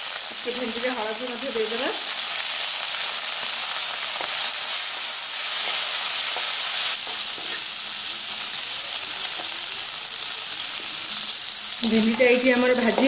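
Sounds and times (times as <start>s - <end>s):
okra sizzling in oil: 0.0s - 13.0s
spatula scraping and tapping pan: 5.6s - 7.7s.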